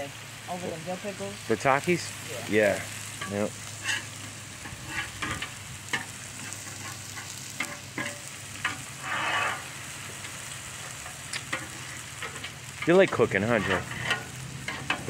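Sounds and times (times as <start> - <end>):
meat sizzling on a griddle: 0.0 - 15.0
spatula scraping griddle: 2.7 - 15.0
metal spatula tapping griddle: 3.2 - 4.0, 4.6 - 8.9, 10.9 - 15.0.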